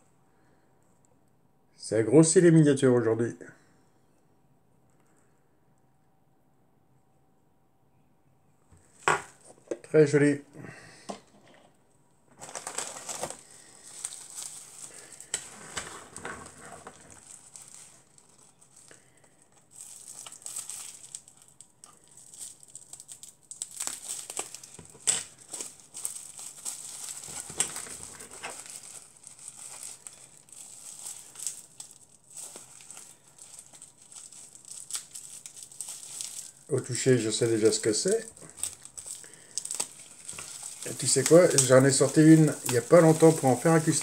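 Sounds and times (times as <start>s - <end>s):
bubble wrap crinkling: 12.3s - 44.0s.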